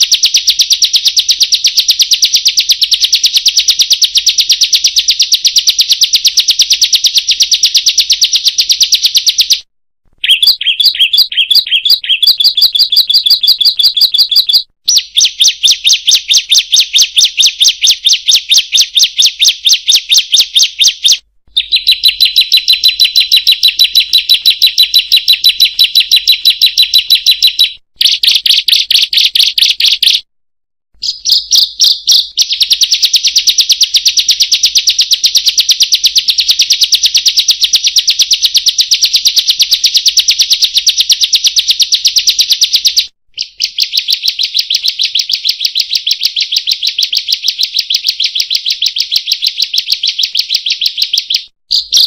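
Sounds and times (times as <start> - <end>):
bird chattering call: 10.2 - 30.2.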